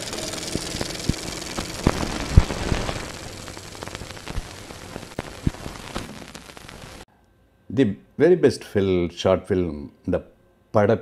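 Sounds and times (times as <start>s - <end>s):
film projector crackle: 0.0s - 7.0s.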